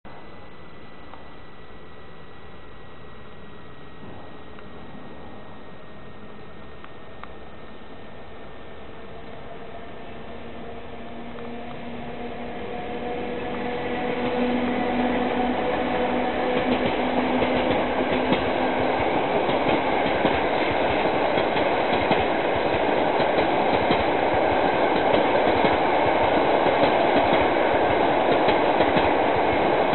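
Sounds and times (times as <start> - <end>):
electric locomotive hum: 0.1 - 29.9
rumble of train coaches: 0.1 - 29.9
wheels clacking over rails: 15.7 - 29.9.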